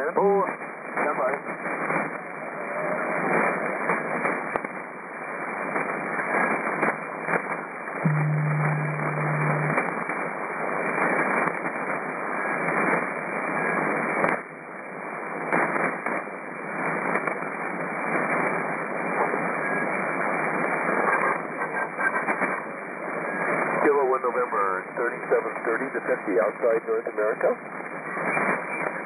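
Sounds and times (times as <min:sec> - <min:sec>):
radio receiver hiss: 0:05.4 - 0:10.1, 0:23.7 - 0:29.0
low steady tone: 0:08.0 - 0:09.8
static crashes: 0:08.0 - 0:10.0.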